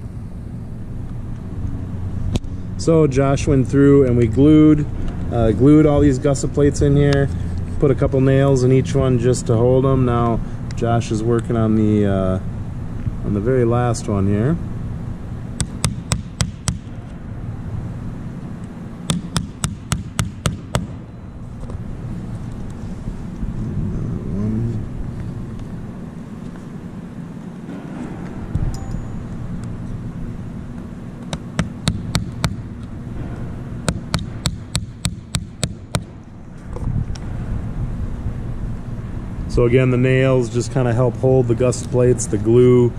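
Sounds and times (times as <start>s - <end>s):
small hammer tapping nail: 19.1s - 20.9s.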